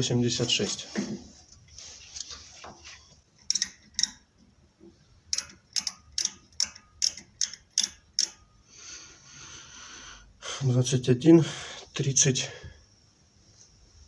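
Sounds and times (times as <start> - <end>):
micrometer ratchet clicking: 3.4 - 4.3, 5.3 - 8.5.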